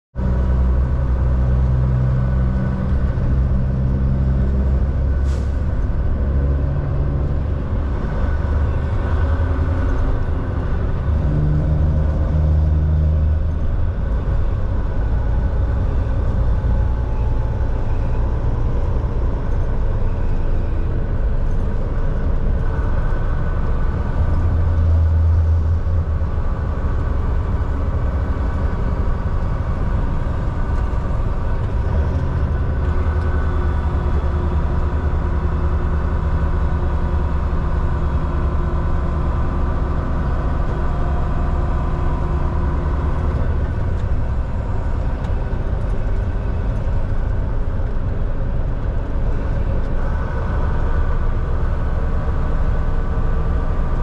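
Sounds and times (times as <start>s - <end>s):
road rumble: 0.1s - 54.0s
truck engine drone: 0.1s - 54.0s.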